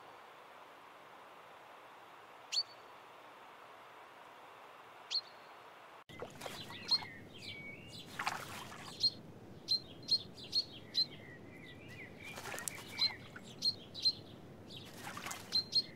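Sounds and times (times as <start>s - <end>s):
bird splashing in water: 6.1s - 9.2s, 11.9s - 13.8s, 14.8s - 15.9s.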